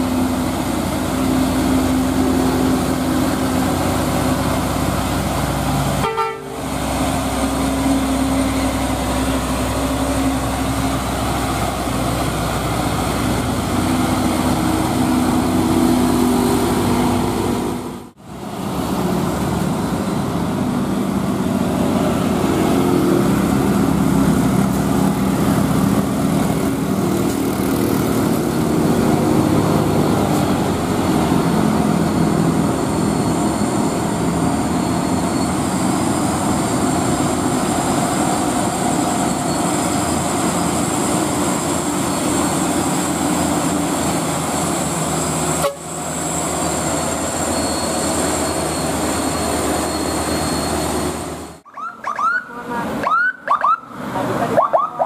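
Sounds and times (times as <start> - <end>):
another truck engine: 0.0 - 55.0
diesel truck engine droning: 0.0 - 55.0
traffic noise: 0.0 - 55.0
passing motorbike: 21.6 - 31.7.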